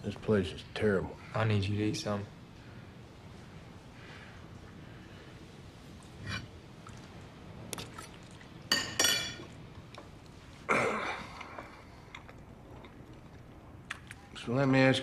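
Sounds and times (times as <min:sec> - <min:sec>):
cutlery clinking against dishes: 0:08.7 - 0:09.6.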